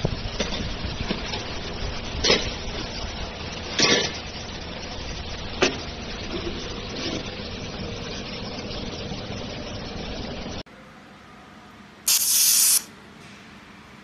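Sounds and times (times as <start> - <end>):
steady machine noise: 0.0 - 10.6.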